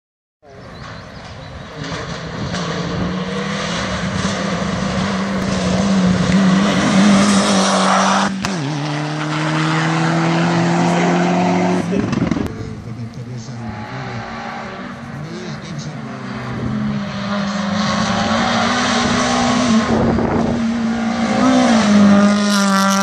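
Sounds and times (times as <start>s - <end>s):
race car engine passing: 0.8s - 23.0s.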